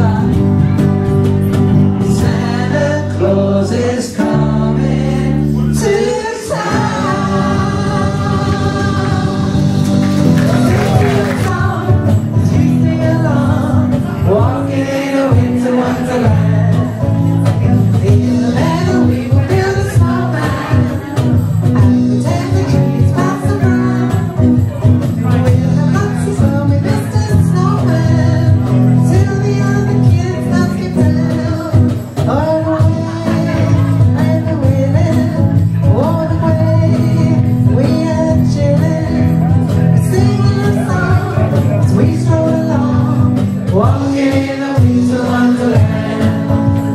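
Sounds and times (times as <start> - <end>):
bass line: 0.0 - 46.9
electric guitar: 0.0 - 46.9
woman singing: 2.2 - 9.8, 10.9 - 24.6.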